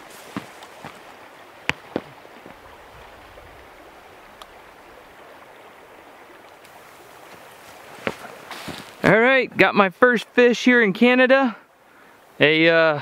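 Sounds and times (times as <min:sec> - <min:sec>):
boot footfalls on boulders: 0:00.0 - 0:02.6, 0:07.3 - 0:09.0
river flowing over rocks: 0:00.0 - 0:09.1.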